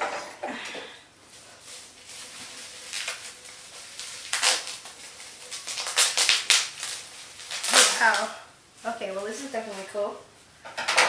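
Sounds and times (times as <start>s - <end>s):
packaging rustling and crinkling: 1.3s - 10.0s.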